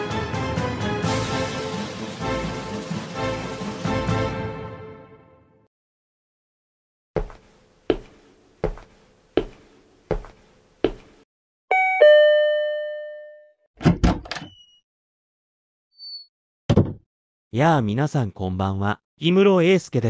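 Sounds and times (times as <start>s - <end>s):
slow footsteps: 7.2s - 11.2s
two-tone doorbell chime: 11.7s - 13.6s.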